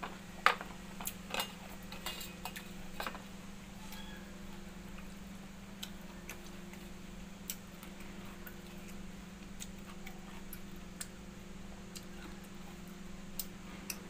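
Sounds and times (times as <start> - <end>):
steady low hum: 0.0 - 14.0
chewing and smacking: 5.8 - 11.2.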